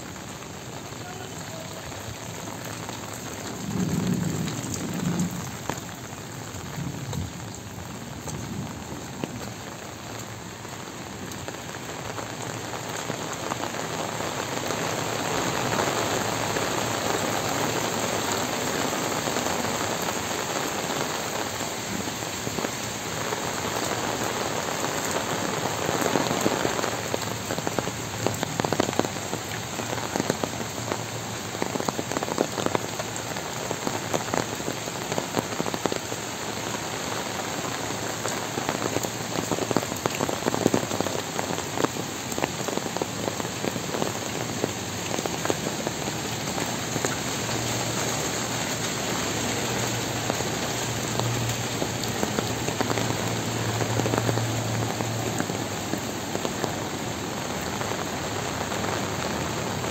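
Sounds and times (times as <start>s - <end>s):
heavy rain: 0.0s - 59.9s.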